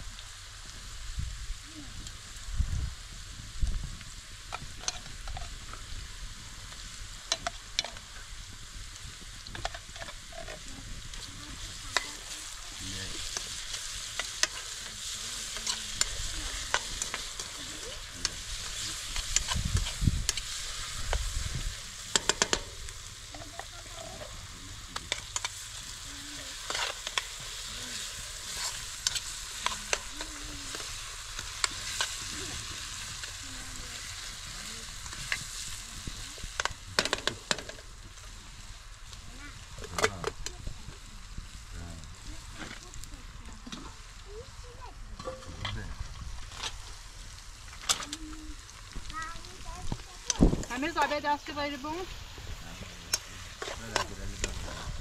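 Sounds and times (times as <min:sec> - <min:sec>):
vegetables sizzling in a pan: 0:00.0 - 0:55.0
spoon scraping and clicking on pan: 0:22.1 - 0:22.7.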